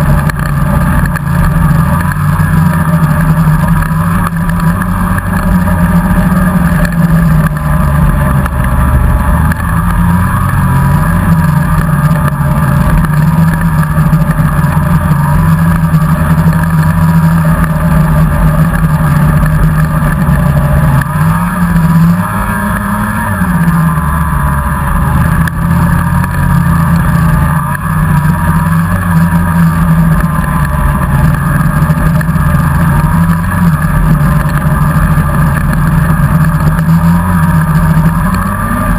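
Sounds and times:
snowmobile engine running: 0.0s - 38.9s.

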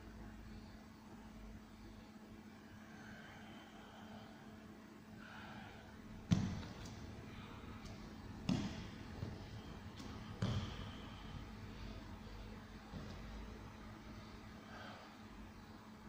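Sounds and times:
dull thuds on a mat: 6.2s - 11.3s, 12.8s - 13.5s.

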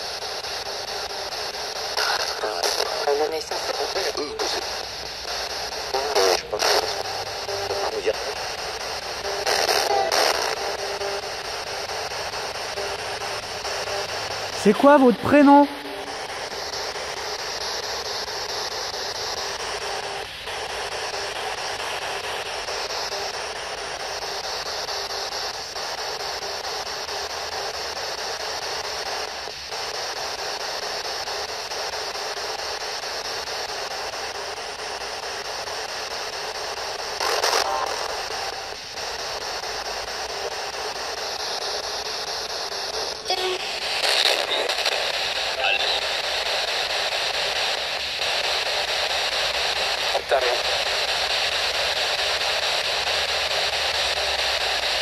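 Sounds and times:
radio crackle: 0.0s - 55.0s
radio static hiss: 0.0s - 55.0s.

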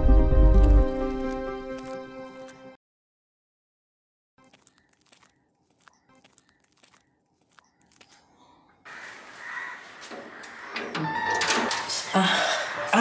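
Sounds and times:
metal gate latch rattling: 10.8s - 12.0s.

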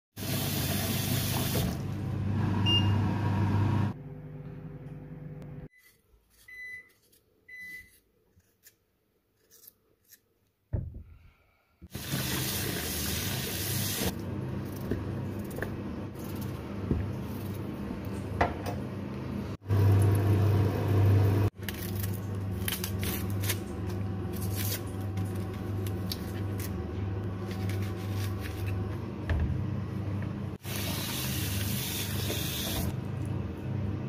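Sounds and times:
knife scraping potato: 5.7s - 10.3s, 27.4s - 28.8s.

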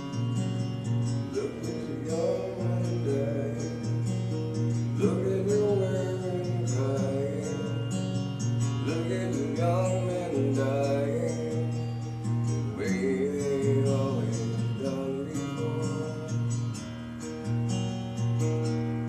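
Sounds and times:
acoustic guitar strumming: 0.0s - 19.0s
man singing through effects: 1.3s - 8.0s, 8.8s - 16.8s.

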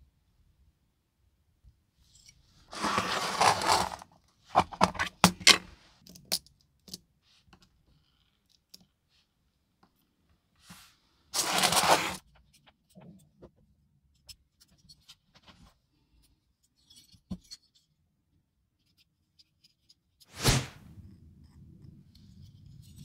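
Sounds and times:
small hard objects clattering: 2.7s - 4.0s, 11.4s - 12.2s.

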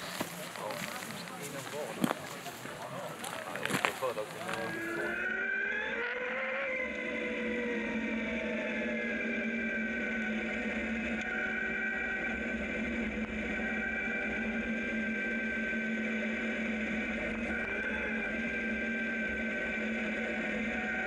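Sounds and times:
tyres rumbling on gravel: 0.0s - 5.2s
electric motor whine: 0.0s - 21.0s.

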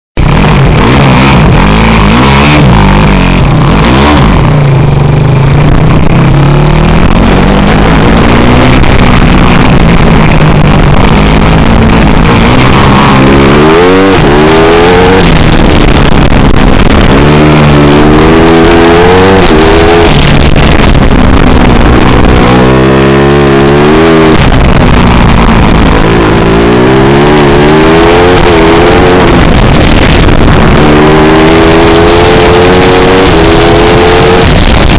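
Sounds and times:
kart engine revving: 0.2s - 34.9s.

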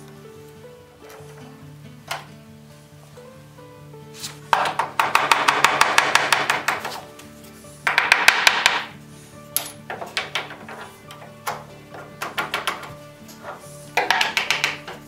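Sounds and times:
fast clicking and clattering: 4.5s - 7.1s, 7.9s - 8.9s, 14.0s - 15.0s.

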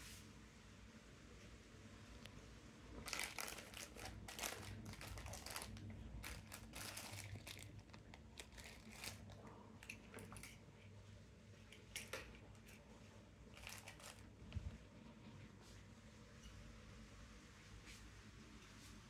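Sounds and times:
plastic bags crinkling: 3.0s - 10.5s, 13.5s - 14.3s.

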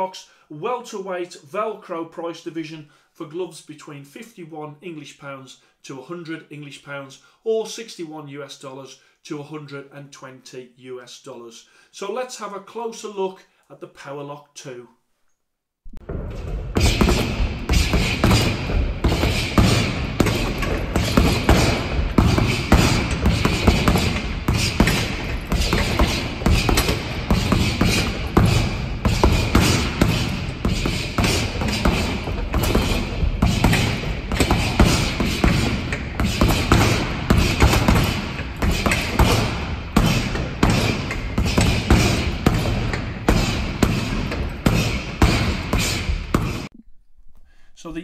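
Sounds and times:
gloves punching heavy bag: 16.0s - 46.7s.

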